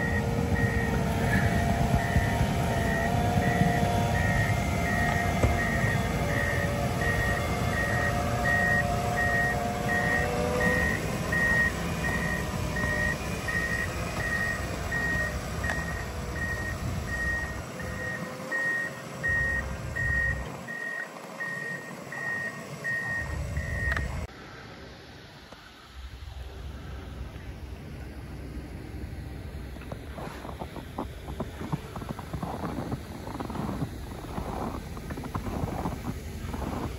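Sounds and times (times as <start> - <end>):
reversing alarm beeping: 0.0 - 24.3
diesel engine rumble: 0.0 - 36.9.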